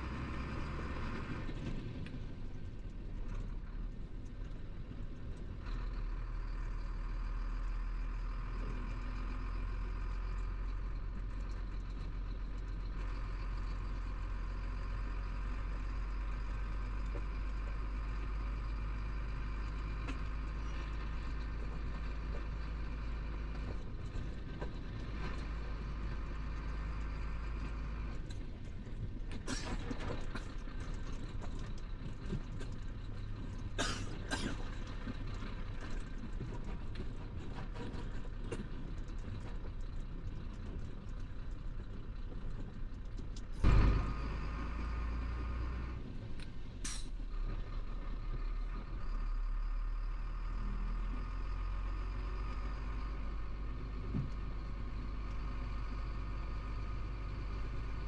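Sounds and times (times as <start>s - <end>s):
diesel engine running: 0.0s - 58.0s
short air hisses: 46.8s - 47.1s.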